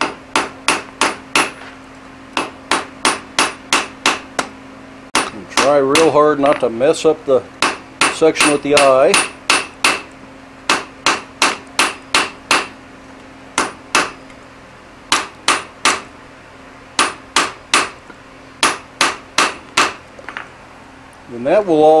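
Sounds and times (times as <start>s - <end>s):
hammer striking metal on anvil: 0.0s - 1.6s, 2.4s - 4.5s, 5.2s - 6.8s, 7.6s - 10.1s, 10.7s - 12.8s, 13.6s - 14.2s, 15.1s - 16.1s, 17.0s - 18.0s, 18.6s - 20.0s
faint steady hum: 0.0s - 22.0s.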